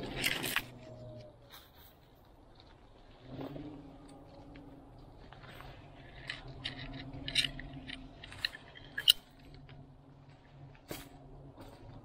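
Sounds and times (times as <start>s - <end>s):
dry brush crackling and snapping: 0.0s - 0.9s.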